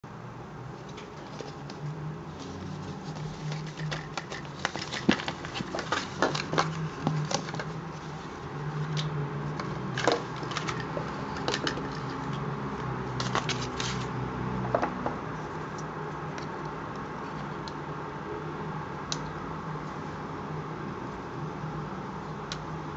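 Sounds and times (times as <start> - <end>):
plastic parts clicking: 3.5 - 7.7, 8.9 - 12.4.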